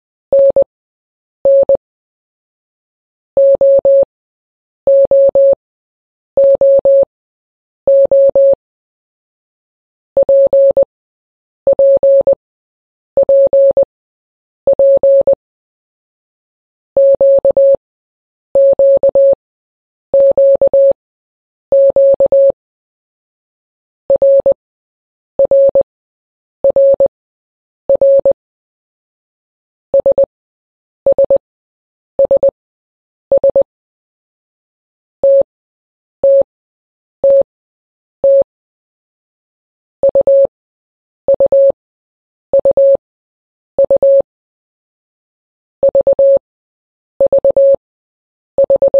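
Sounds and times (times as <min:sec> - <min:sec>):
morse code beeps: 0:00.3 - 0:00.7, 0:01.5 - 0:01.8, 0:03.4 - 0:04.1, 0:04.9 - 0:05.6, 0:07.9 - 0:08.6, 0:10.2 - 0:10.9, 0:11.7 - 0:12.4, 0:14.7 - 0:15.3, 0:17.0 - 0:17.8, 0:18.6 - 0:19.4, 0:21.7 - 0:22.6, 0:24.1 - 0:24.6, 0:25.4 - 0:25.8, 0:26.6 - 0:27.1, 0:27.9 - 0:28.4, 0:30.0 - 0:30.3, 0:31.1 - 0:31.4, 0:32.2 - 0:32.6, 0:33.3 - 0:33.7, 0:35.2 - 0:35.5, 0:36.2 - 0:36.5, 0:37.2 - 0:37.5, 0:38.2 - 0:38.4, 0:40.0 - 0:40.5, 0:41.3 - 0:41.8, 0:42.6 - 0:43.0, 0:43.8 - 0:44.3, 0:45.9 - 0:46.4, 0:47.2 - 0:47.8, 0:48.6 - 0:48.9.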